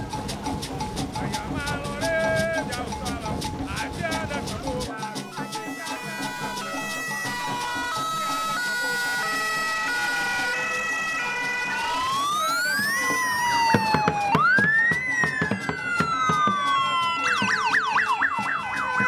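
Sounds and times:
stepped musical notes: 0:00.0 - 0:19.0
siren fast yelp: 0:05.1 - 0:19.0
electronic siren wailing: 0:05.2 - 0:19.0.

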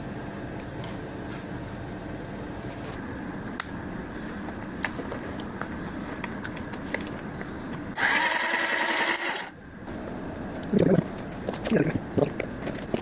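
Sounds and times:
low fan hum: 0:00.0 - 0:13.0
small gear motor whining: 0:08.0 - 0:09.6.

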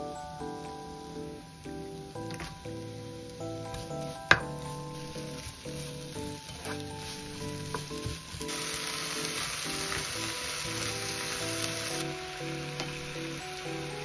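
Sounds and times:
food sizzling in pan: 0:00.0 - 0:14.0
soft background music: 0:00.0 - 0:14.0
spatula tapping pan: 0:03.7 - 0:08.5.

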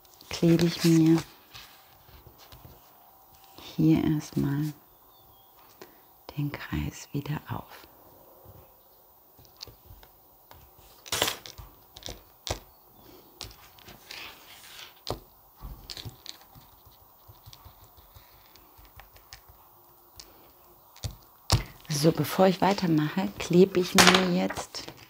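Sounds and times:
paper rustling: 0:00.0 - 0:03.6, 0:13.4 - 0:15.2, 0:23.9 - 0:25.0.

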